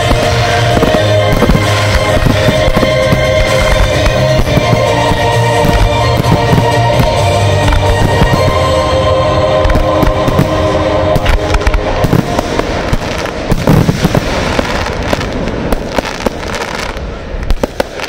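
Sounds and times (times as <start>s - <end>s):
music: 0.0s - 14.2s
fireworks bangs and crackles: 0.0s - 18.0s.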